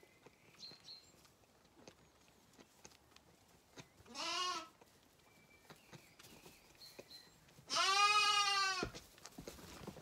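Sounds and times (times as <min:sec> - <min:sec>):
lamb bleating: 0:04.1 - 0:04.8, 0:07.7 - 0:09.0.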